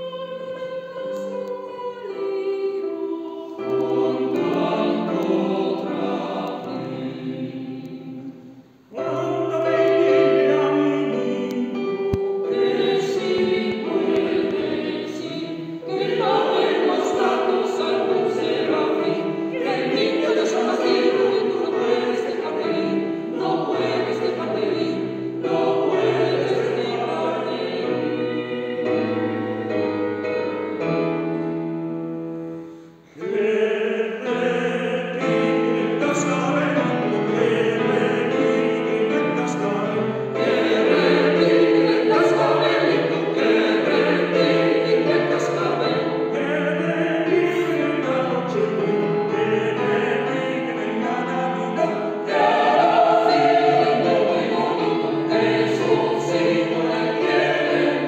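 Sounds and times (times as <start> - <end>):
mixed choir singing: 0.0 - 31.5, 33.1 - 58.0.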